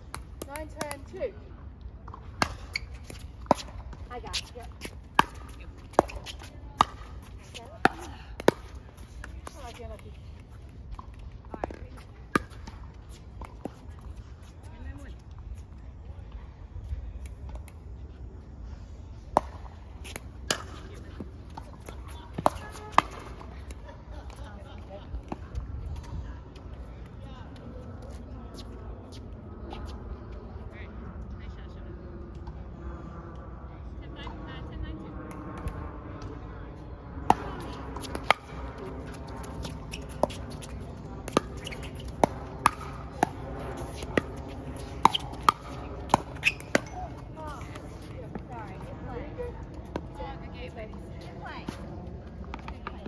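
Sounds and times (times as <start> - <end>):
ball bouncing on hard court: 37.3 - 48.1.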